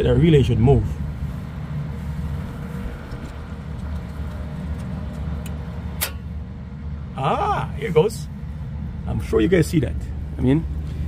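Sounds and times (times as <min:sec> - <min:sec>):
relay click: 0:04.8 - 0:06.3.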